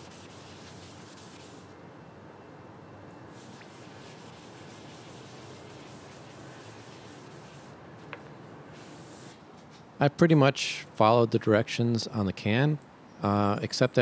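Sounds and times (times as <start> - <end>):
gloved hand rubbing wood: 0.0 - 1.7, 3.4 - 7.8, 8.8 - 9.4.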